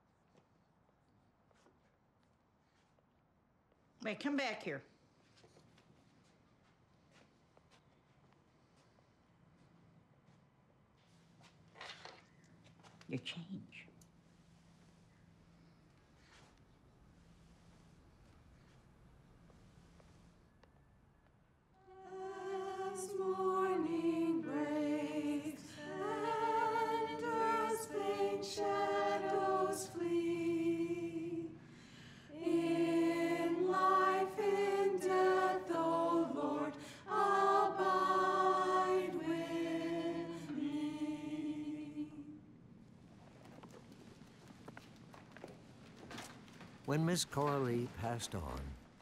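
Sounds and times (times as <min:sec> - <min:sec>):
choir singing a hymn: 0:21.8 - 0:42.6.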